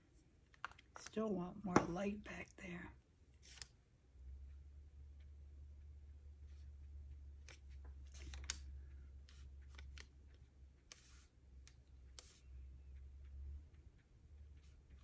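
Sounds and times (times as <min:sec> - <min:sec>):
low steady hum: 0:00.0 - 0:15.0
paintbrush strokes on paper: 0:03.4 - 0:03.8, 0:05.7 - 0:15.0.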